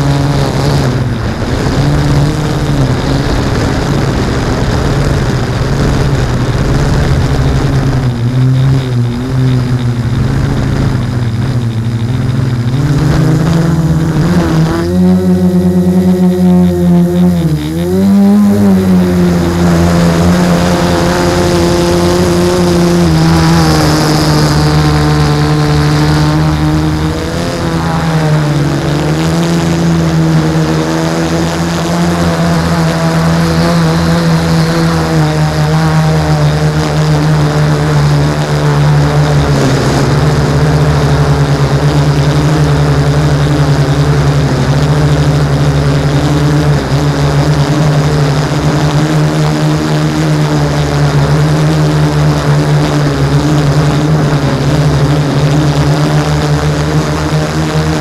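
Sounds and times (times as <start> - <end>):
drone motors buzzing: 0.0 - 58.0.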